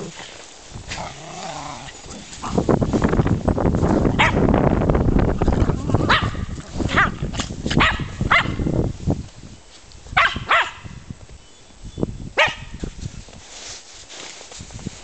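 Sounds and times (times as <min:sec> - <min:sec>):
dogs barking: 0:04.2 - 0:04.5, 0:06.0 - 0:08.7, 0:10.2 - 0:10.9, 0:12.4 - 0:12.8.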